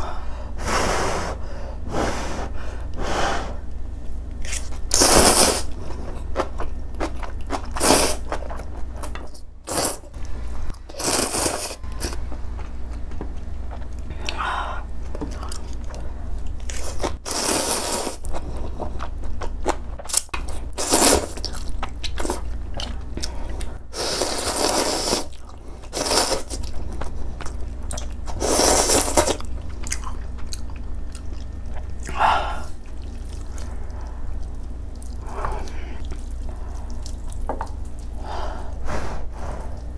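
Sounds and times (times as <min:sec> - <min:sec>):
chewing: 0:25.3 - 0:32.2, 0:32.8 - 0:38.2.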